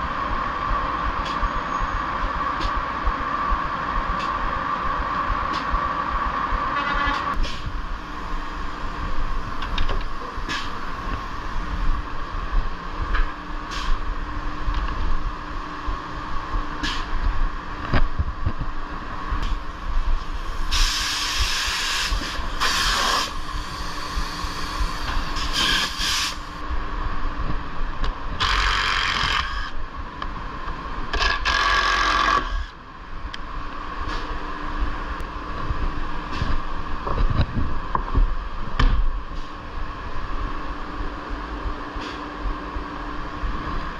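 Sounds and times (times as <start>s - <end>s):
machine hum: 0.0s - 43.9s
compressed air hisses: 20.4s - 26.6s.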